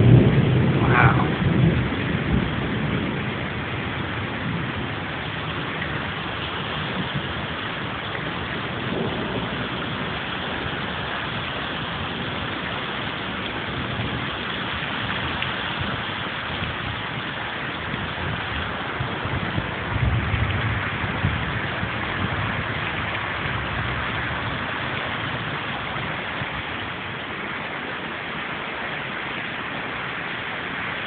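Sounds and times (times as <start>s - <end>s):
steady rain hiss: 0.0s - 31.0s.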